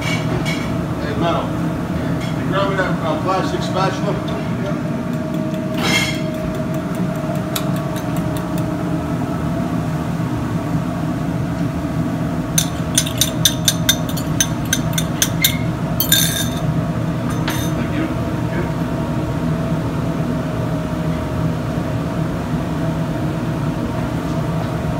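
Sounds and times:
kitchen fans humming: 0.0s - 24.9s
utensil clinking against cup: 12.6s - 16.7s, 17.3s - 17.8s.

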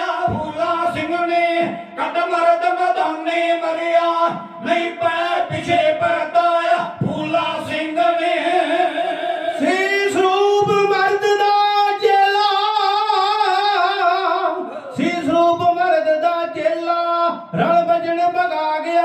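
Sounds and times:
folk vocal group singing: 0.0s - 11.3s.

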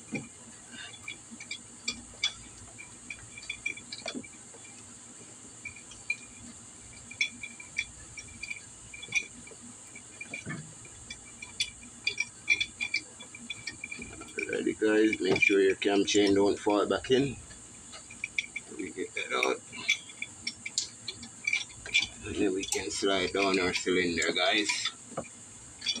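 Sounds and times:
insects chirping: 0.0s - 26.0s
light metal clicks and knocks: 0.0s - 26.0s.

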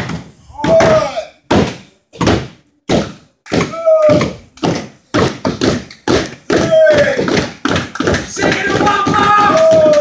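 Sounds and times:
sharp thuds and slaps: 0.0s - 10.0s
drawn-out shout: 8.3s - 10.0s.

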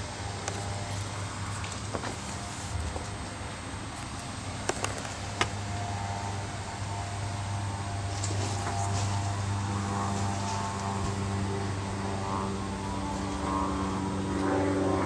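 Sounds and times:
mechanical drone with pitched tones: 0.0s - 15.0s.

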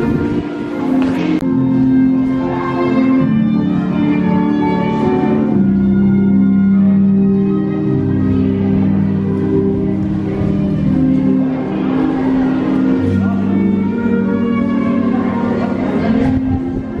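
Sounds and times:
violin slow melody through speaker: 0.0s - 17.0s
people talking: 8.0s - 17.0s.

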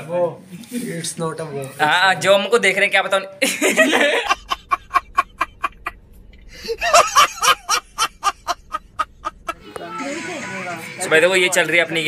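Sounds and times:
man laughing hard: 3.4s - 5.9s, 6.6s - 9.6s.

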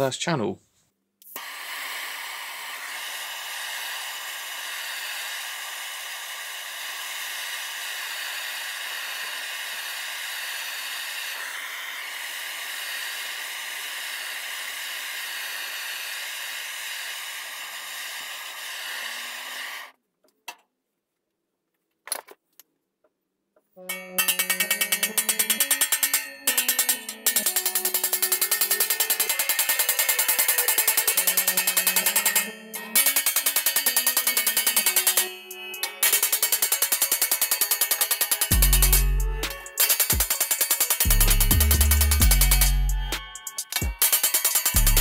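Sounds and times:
gas blowtorch hissing: 1.3s - 19.9s
background music with a beat: 24.1s - 45.0s.

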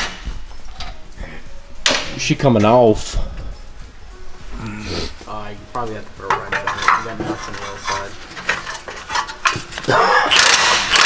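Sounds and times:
metal tools clinking and rattling: 6.2s - 11.0s
impact wrench whirring: 10.3s - 11.0s.

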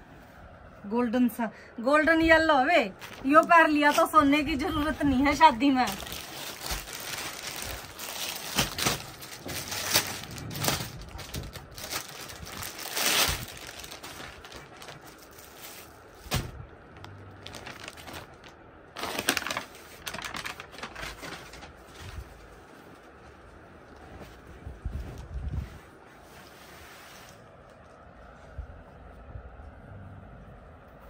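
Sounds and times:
fabric rustling: 2.4s - 28.6s
plastic packaging crinkling: 2.8s - 23.2s.

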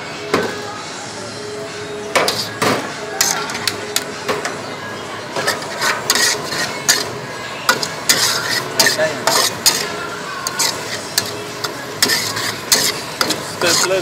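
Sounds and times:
metal spatula scraping wok: 2.2s - 2.6s, 3.2s - 4.1s, 5.3s - 14.0s
food sizzling: 5.2s - 14.0s.

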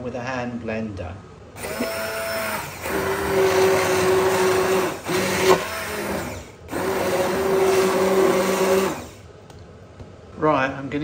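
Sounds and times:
hand blender motor running: 1.6s - 9.2s.

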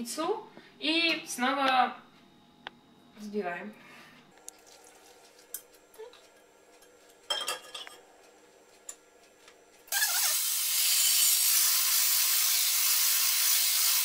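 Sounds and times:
dishes and utensils clinking: 6.8s - 8.0s
electric hand blender whisking: 9.9s - 14.0s.

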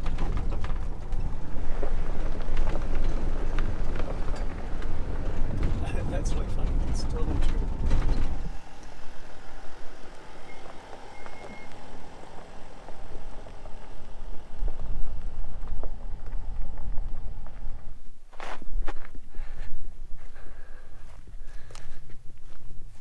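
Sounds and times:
van driving on gravel: 0.0s - 23.0s.

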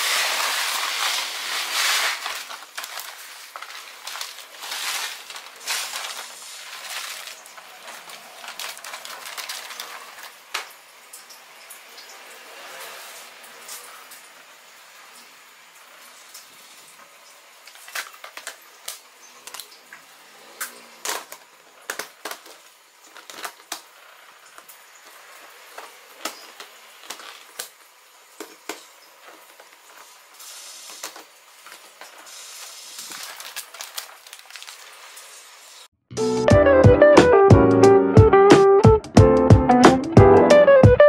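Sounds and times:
rice pouring into plastic box: 0.0s - 10.7s, 28.6s - 35.8s
plastic crackling: 0.0s - 10.8s, 17.6s - 35.8s.

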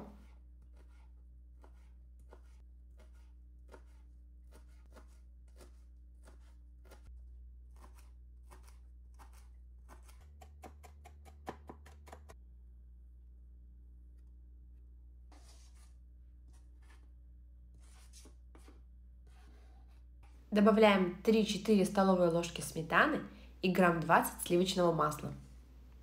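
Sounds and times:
knife chopping on cutting board: 0.7s - 7.0s, 7.7s - 12.4s.

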